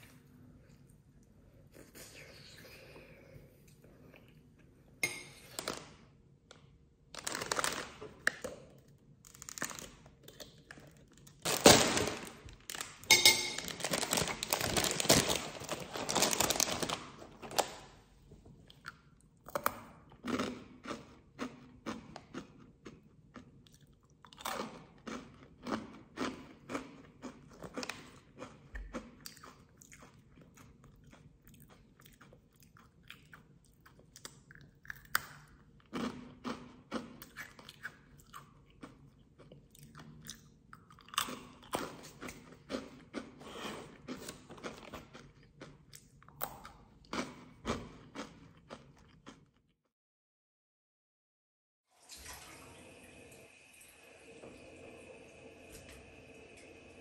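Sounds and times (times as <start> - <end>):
crunching crispy snack: 7.2 - 8.4, 9.2 - 13.0, 13.6 - 17.8
chewing: 18.6 - 49.6.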